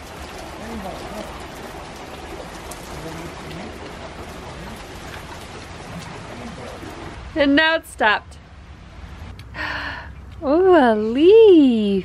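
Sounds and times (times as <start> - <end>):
rain falling on pavement: 0.0 - 9.3.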